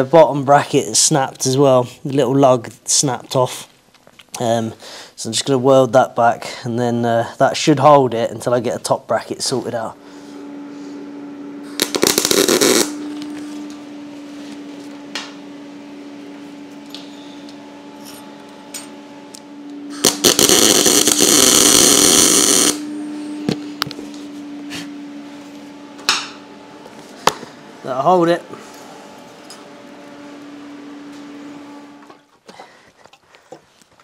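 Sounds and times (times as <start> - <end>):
steady hum: 0.0 - 32.8
welding crackle: 11.7 - 13.2, 20.0 - 22.8.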